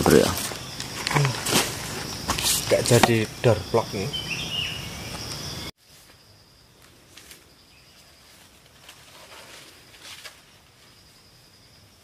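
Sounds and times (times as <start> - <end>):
insects chirring: 0.0 - 12.0
footsteps through undergrowth: 0.2 - 3.0, 6.8 - 10.9.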